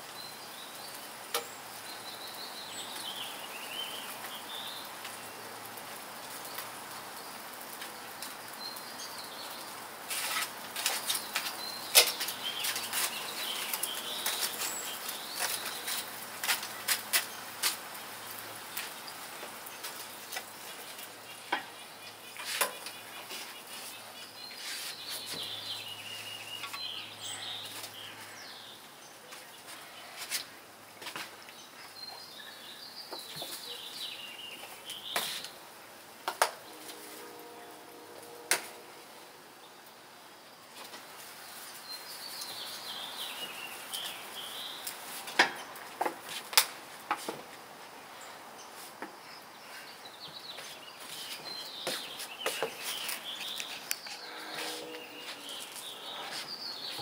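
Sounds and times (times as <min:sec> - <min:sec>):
meat sizzling on a grill: 0:00.0 - 0:28.4.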